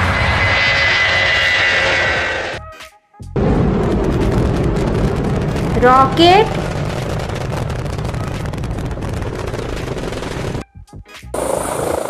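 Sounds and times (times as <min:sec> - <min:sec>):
helicopter rotor: 0:00.0 - 0:02.6, 0:03.6 - 0:10.6
rocket engine crackling: 0:00.0 - 0:02.6, 0:03.4 - 0:10.6, 0:11.4 - 0:12.0.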